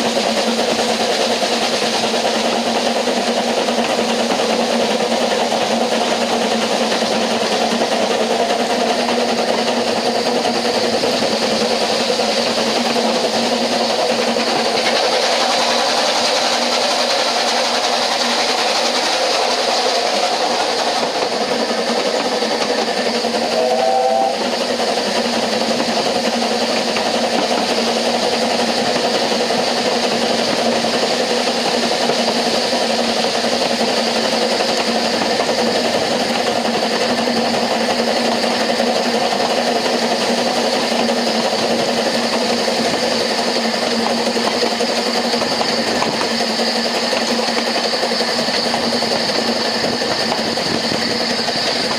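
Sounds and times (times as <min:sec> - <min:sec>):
train wheels on rail: 0:00.0 - 0:51.9
brief high-pitched note: 0:23.6 - 0:24.4.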